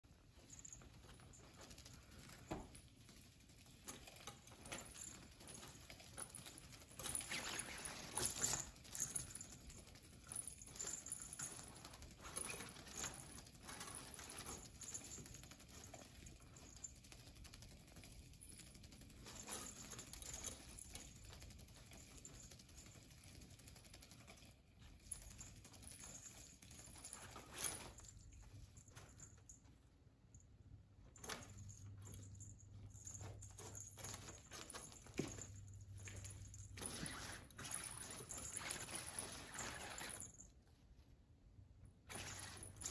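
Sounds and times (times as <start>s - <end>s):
cats scratching at fabric mat: 32.9s - 40.4s.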